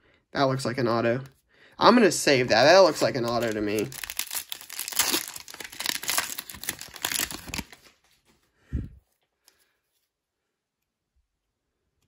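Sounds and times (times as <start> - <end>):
foil pack crinkling: 2.7 - 8.0.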